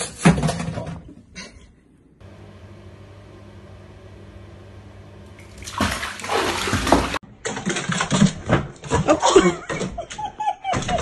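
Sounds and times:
kitten splashing into water: 5.4 - 7.2.

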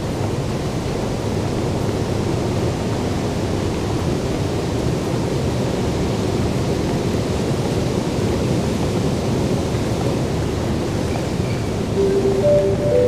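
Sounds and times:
low rumbling station background: 12.0 - 13.0.

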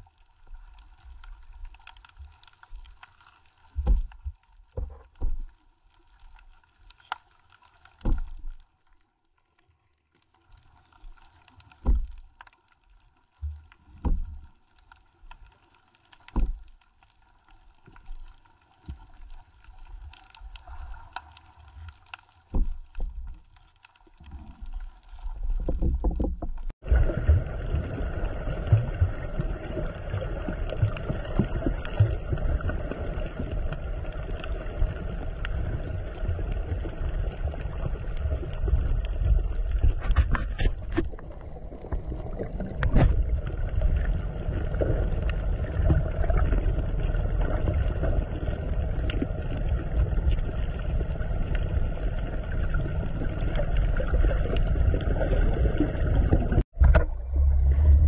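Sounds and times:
low underwater thumps: 11.8 - 12.2, 14.0 - 14.4, 16.4 - 16.7, 22.5 - 23.2, 25.6 - 27.9, 56.1 - 58.0.

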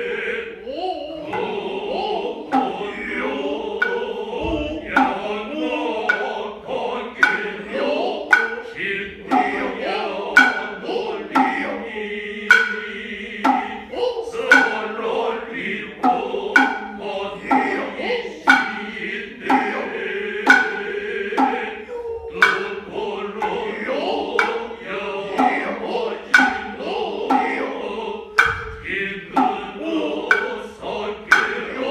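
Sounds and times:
chorus chanting in unison: 0.0 - 31.9
hand drum strikes: 3.8 - 5.3, 7.2 - 7.6, 8.2 - 9.7, 10.3 - 11.8, 12.5 - 14.9, 16.0 - 21.7, 22.4 - 23.8, 24.4 - 27.7, 28.3 - 30.6, 31.3 - 31.9.

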